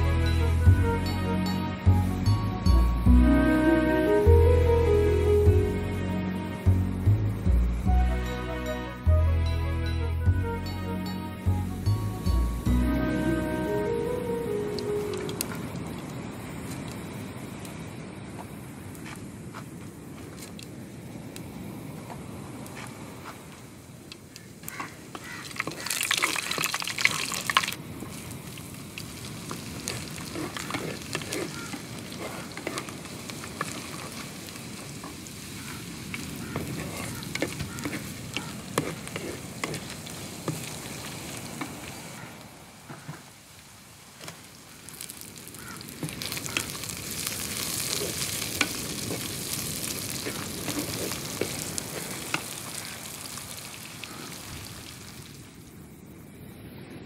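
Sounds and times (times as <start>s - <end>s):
spices sizzling in hot oil: 25.2s - 42.0s, 44.2s - 55.4s
spatula scraping a pot: 30.3s - 32.9s, 36.6s - 40.0s.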